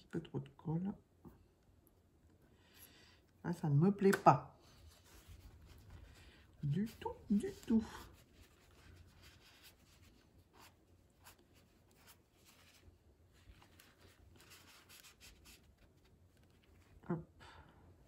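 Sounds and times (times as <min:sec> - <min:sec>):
tissue rustling on cardboard: 0:04.6 - 0:17.0.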